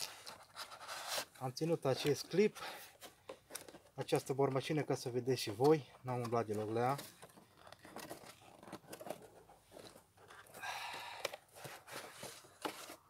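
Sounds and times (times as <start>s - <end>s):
cardboard rustling: 5.4s - 13.0s
cardboard scrapes and clicks: 6.2s - 10.6s, 11.3s - 13.0s.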